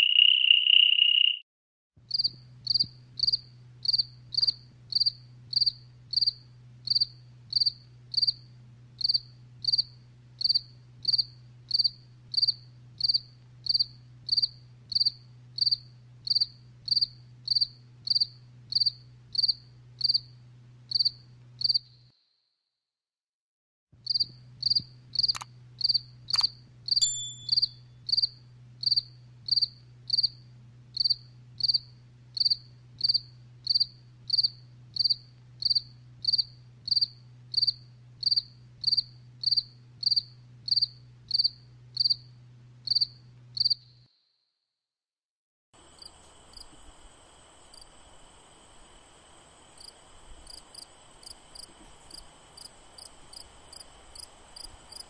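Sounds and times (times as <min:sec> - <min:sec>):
cricket chirping: 0:00.0 - 0:01.4, 0:02.1 - 0:20.3, 0:20.9 - 0:22.2, 0:24.1 - 0:30.4, 0:31.0 - 0:44.1, 0:45.8 - 0:55.0
low steady hum: 0:27.0 - 0:27.8.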